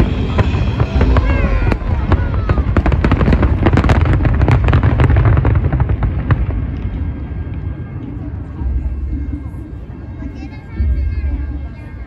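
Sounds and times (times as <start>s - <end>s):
fireworks crackling and popping: 0.0s - 9.6s
deep rumble: 0.0s - 12.0s.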